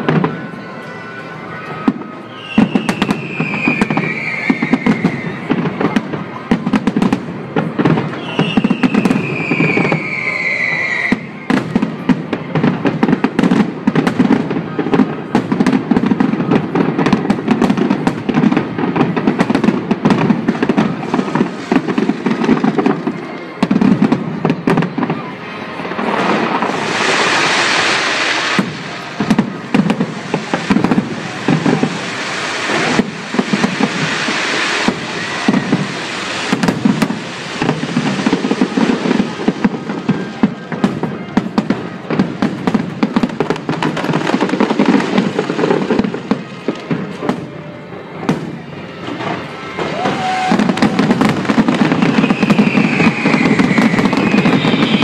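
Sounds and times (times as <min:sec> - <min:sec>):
firework crackles: 0:00.0 - 0:55.0
falling whistle: 0:01.8 - 0:05.4, 0:08.2 - 0:11.6, 0:51.9 - 0:55.0
dense hissing rush: 0:26.1 - 0:39.9.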